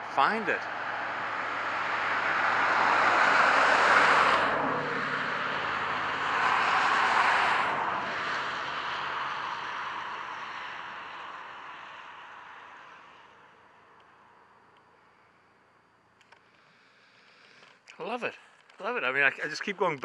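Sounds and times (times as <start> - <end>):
vehicles passing by: 0.0 - 15.5.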